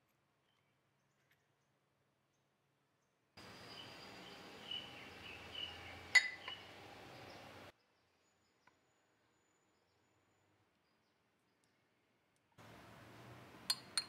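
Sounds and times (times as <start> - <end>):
spoon clinking on ceramic bowl: 6.1 - 6.6, 13.7 - 14.0.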